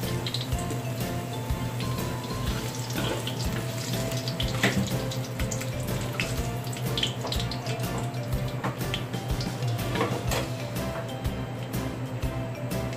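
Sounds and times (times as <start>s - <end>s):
vegetables sizzling in oil: 0.0s - 11.0s
spatulas scraping a pan: 2.5s - 3.7s.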